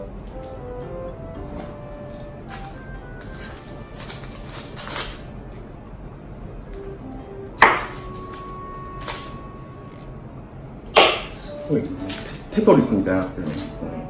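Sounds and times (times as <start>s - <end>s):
faint background music: 0.0s - 14.0s.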